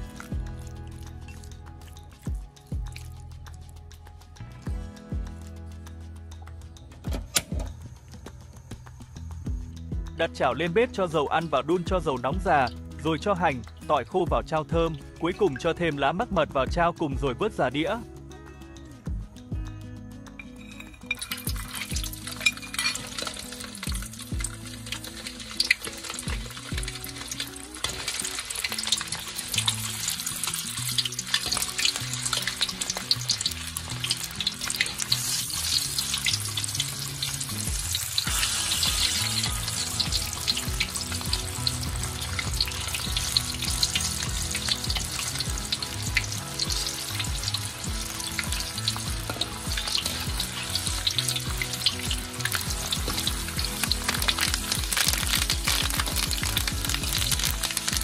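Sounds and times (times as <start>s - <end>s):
food sizzling in hot oil: 0.0s - 4.2s, 20.3s - 58.0s.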